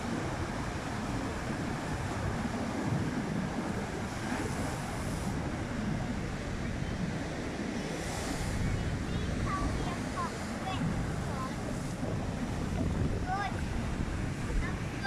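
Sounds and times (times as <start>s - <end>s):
waves crashing on slipway: 0.0s - 15.0s
wind buffeting microphone: 0.0s - 15.0s.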